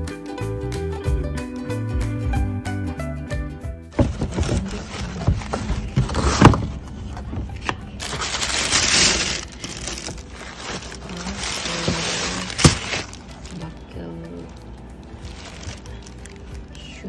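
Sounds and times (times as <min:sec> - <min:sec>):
background music: 0:00.0 - 0:17.0
tissue paper rustling and crinkling: 0:04.0 - 0:16.7.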